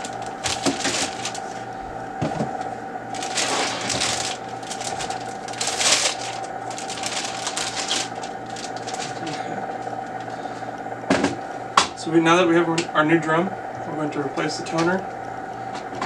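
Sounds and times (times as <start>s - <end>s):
foil bag crinkling: 0.0s - 1.8s, 3.1s - 10.6s.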